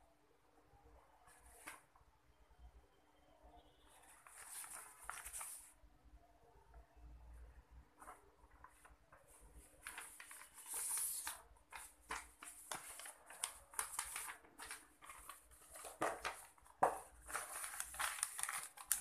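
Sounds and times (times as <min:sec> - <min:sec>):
paper rustling and crinkling: 0:04.1 - 0:05.7, 0:08.0 - 0:19.0.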